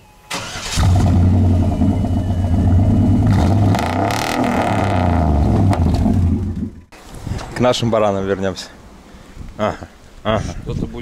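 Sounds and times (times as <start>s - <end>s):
car engine running: 0.9s - 6.9s.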